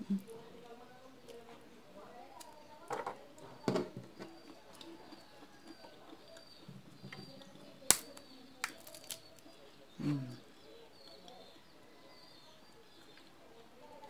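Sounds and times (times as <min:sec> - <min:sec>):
peanut shells cracking: 0:07.5 - 0:09.6.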